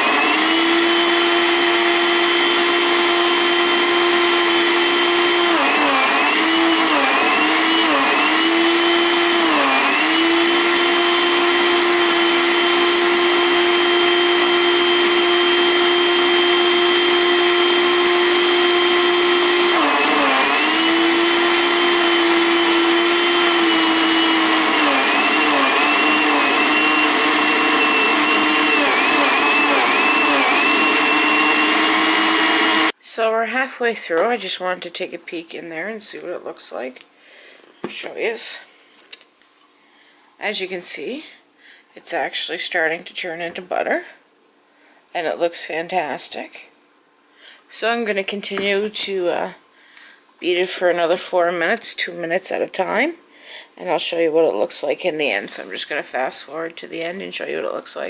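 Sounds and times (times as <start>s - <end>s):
blender motor running: 0.0s - 33.0s.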